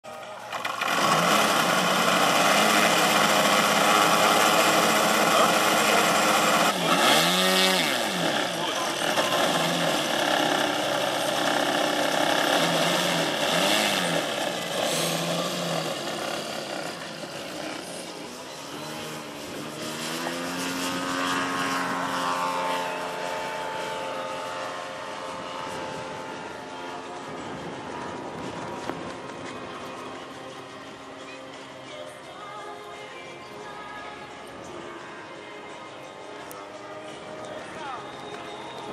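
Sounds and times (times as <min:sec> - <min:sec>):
model aircraft engine running: 0:00.1 - 0:38.9
electric starter spinning: 0:00.3 - 0:20.3.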